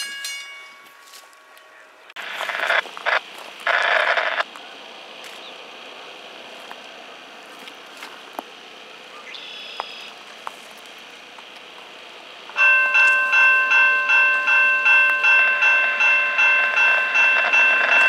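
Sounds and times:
level crossing warning bell: 0.0 - 1.6, 12.5 - 18.0.

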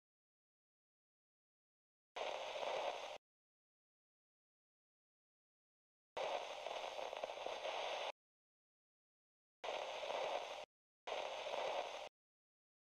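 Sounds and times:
television static hiss: 2.2 - 3.2, 6.2 - 8.1, 9.7 - 12.1.

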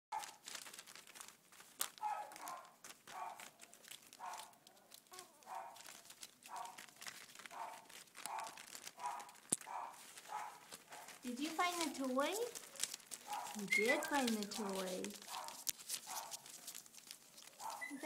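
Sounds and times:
newspaper crinkling: 0.1 - 18.0
patter of small paws: 0.1 - 18.0
puppies yipping: 2.0 - 16.8, 17.4 - 18.0.

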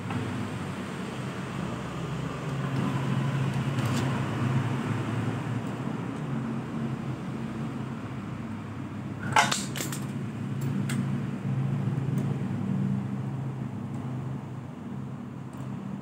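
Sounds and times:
screwdriver and metal parts clinking: 9.2 - 10.8.

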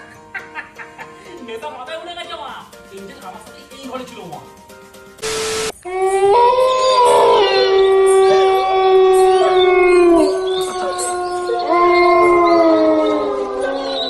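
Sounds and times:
dogs howling: 5.9 - 14.0.

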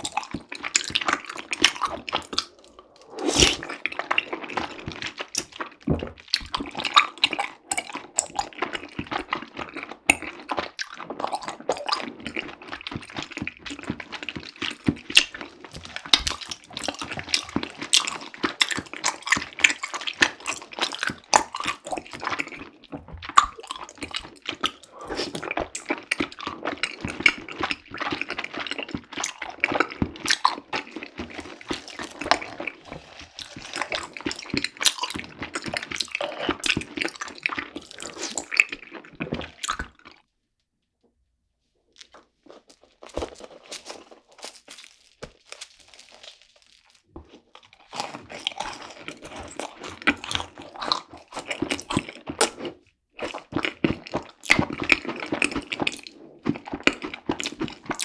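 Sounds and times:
wooden spoon squelching tapioca pearls: 8.4 - 40.3, 42.0 - 58.0.

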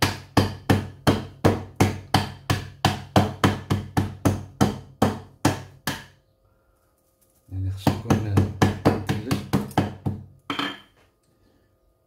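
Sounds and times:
rolling pin pounding ice: 7.8 - 10.2.

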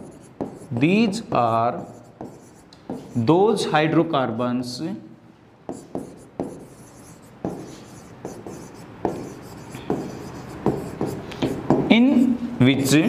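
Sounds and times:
pen scratching on screen: 0.0 - 3.4, 5.7 - 12.2.

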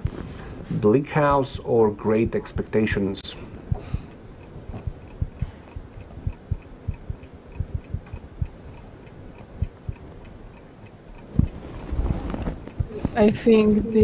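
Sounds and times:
soft low thuds: 3.6 - 8.8, 9.4 - 10.3, 11.1 - 14.0
fast clock ticking: 3.6 - 11.6, 12.6 - 14.0.

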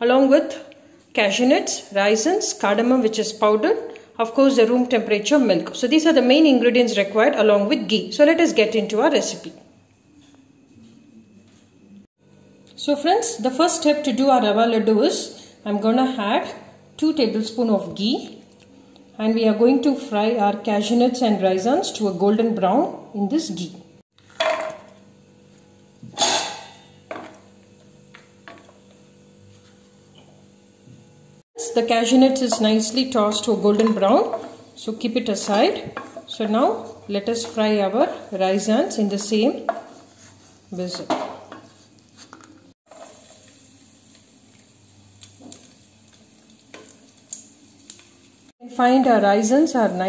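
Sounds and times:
raisins sizzling in a pan: 26.0 - 41.5, 42.8 - 50.0.

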